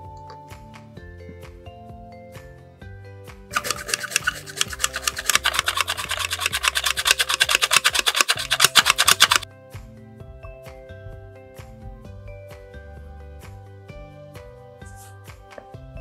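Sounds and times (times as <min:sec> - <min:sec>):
flour sifter rasping: 0:03.5 - 0:09.4.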